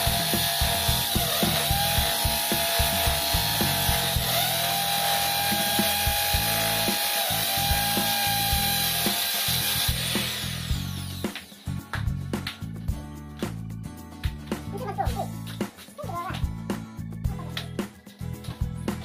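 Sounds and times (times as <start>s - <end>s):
electric drill whining: 0.0s - 11.7s.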